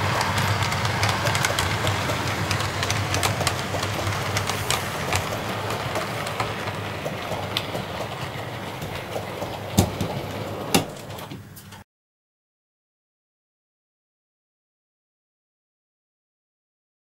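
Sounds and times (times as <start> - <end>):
diesel locomotive engine hum: 0.0 - 11.8
train wheels clicking on rails: 0.0 - 11.8.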